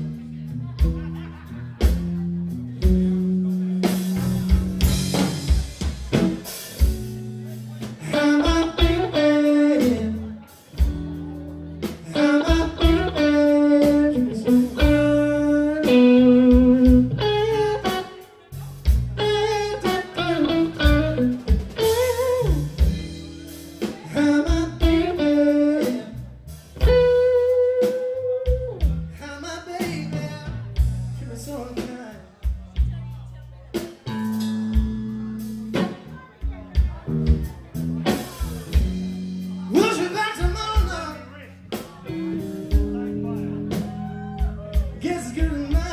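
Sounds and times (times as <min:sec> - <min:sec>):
bass guitar: 0:00.0 - 0:45.9
drum kit: 0:00.0 - 0:45.9
electric guitar lead lines: 0:06.2 - 0:26.2, 0:26.8 - 0:28.8, 0:41.8 - 0:44.7.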